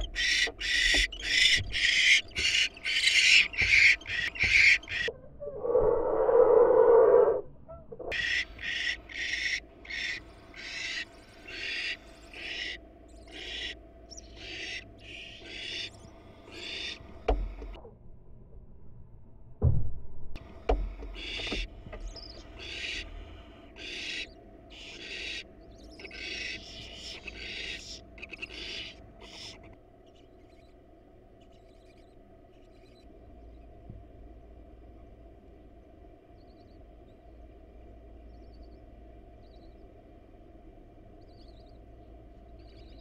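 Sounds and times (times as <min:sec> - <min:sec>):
owls hissing: 0:00.0 - 0:07.4, 0:08.1 - 0:17.7, 0:21.1 - 0:30.8
dull thumps: 0:17.2 - 0:17.8, 0:19.6 - 0:22.5.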